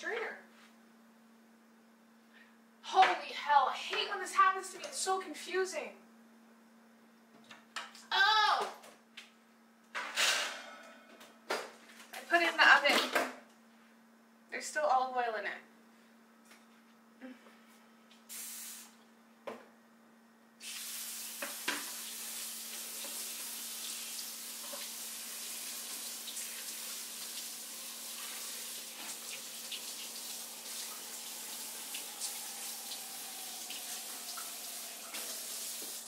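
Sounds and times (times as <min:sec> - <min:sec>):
faucet running into sink: 0:20.6 - 0:36.0.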